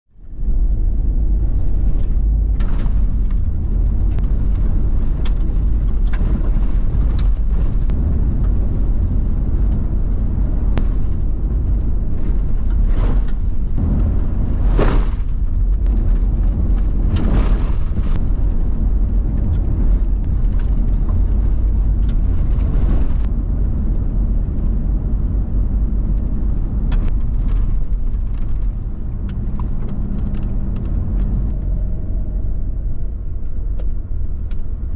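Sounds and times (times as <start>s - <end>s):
vehicle engine and road rumble: 0.1s - 34.9s
knocks and rattles: 1.6s - 23.3s.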